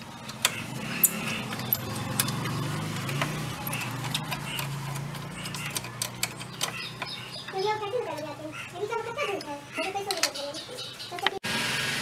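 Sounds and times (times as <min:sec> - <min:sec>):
spanner clicking against nut: 0:00.2 - 0:07.2.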